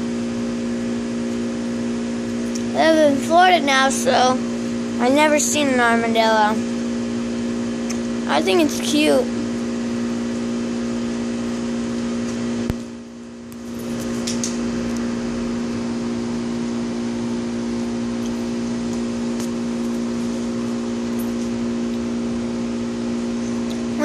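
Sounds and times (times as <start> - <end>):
machine hum: 0.0 - 24.0.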